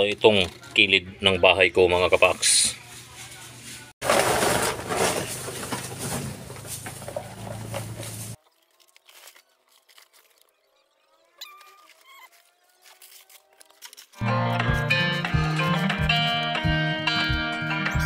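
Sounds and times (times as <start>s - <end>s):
plastic trash rustling: 2.9s - 10.5s
music: 14.2s - 18.0s.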